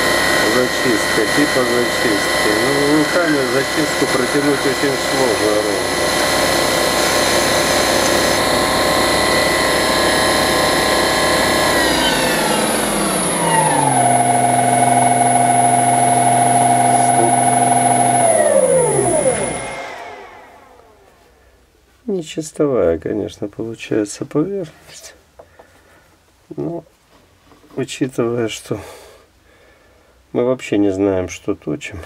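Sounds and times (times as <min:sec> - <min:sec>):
lathe motor whining: 0:00.0 - 0:21.4.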